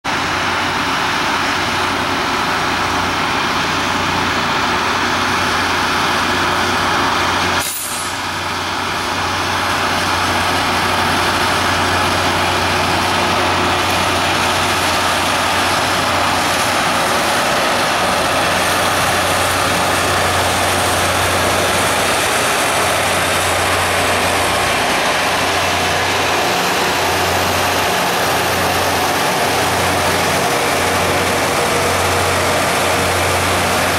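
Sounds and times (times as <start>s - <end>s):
diesel engines humming: 0.1s - 33.9s.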